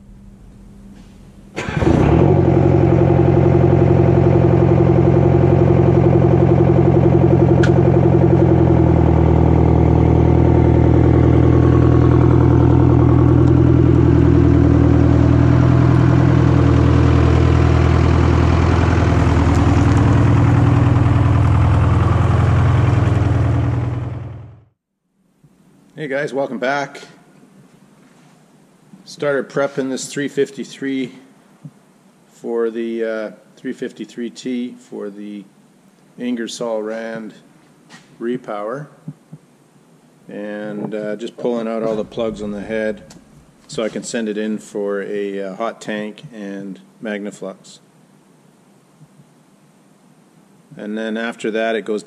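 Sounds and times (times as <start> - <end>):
engine running steadily: 1.6 - 24.7, 41.8 - 44.0.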